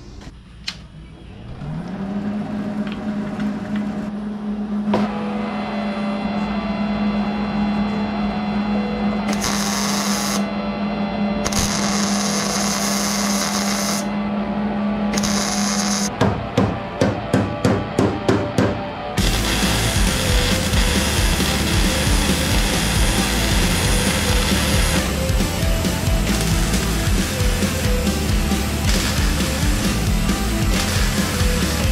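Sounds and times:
steady hum: 2.6s - 31.9s
welding sizzling: 9.3s - 10.4s, 11.5s - 14.1s, 15.2s - 16.1s, 19.2s - 31.9s.

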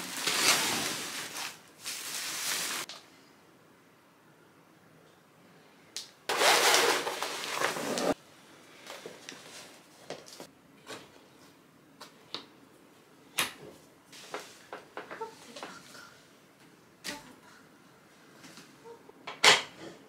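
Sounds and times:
loud rustling: 6.3s - 8.2s.

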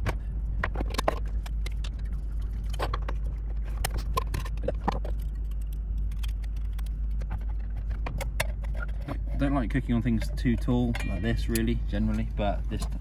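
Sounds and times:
steady low hum: 0.0s - 13.0s
small metal clicks and clinks: 10.4s - 11.7s.

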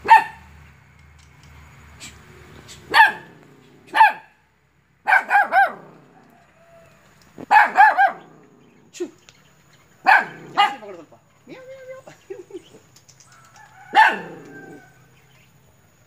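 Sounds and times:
puppy yapping: 0.0s - 0.4s, 2.7s - 4.4s, 5.1s - 6.2s, 7.4s - 8.5s, 10.0s - 11.0s, 13.9s - 14.8s.

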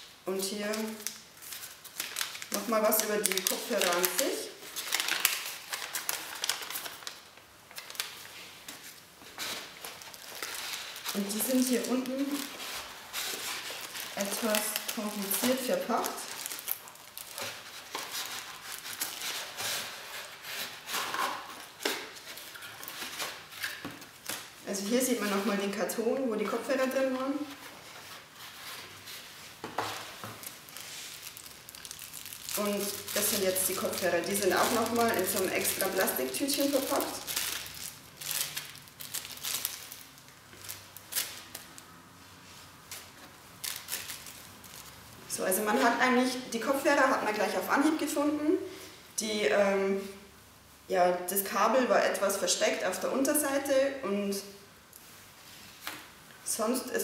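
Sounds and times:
plastic bag crinkling: 0.3s - 25.8s, 29.8s - 41.8s, 42.9s - 46.0s
cardboard and paper rustling: 0.7s - 24.5s, 27.4s - 41.6s.

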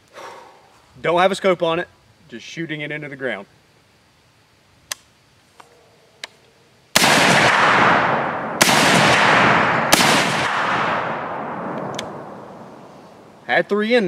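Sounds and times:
rifle cycling and ejecting: 7.0s - 12.4s
rifle shots with echo: 7.0s - 13.3s.

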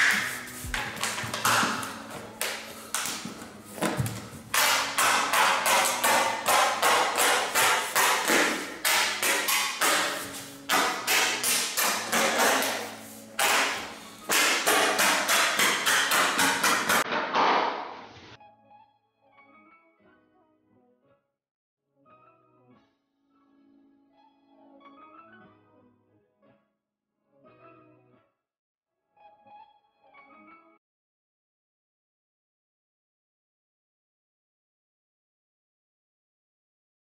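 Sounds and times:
skirting boards being knocked: 0.0s - 18.0s.

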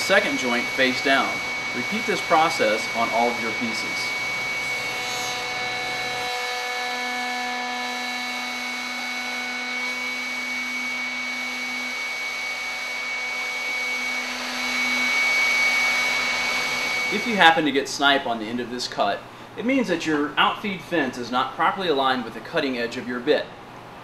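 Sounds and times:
router bit cutting wood: 0.0s - 17.6s
router whining: 0.0s - 17.6s.

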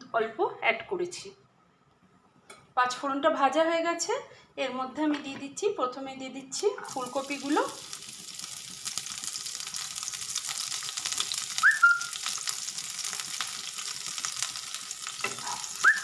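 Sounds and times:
vegetables sizzling in oil: 6.5s - 16.0s
rising whistle-like chirp: 11.6s - 12.2s.

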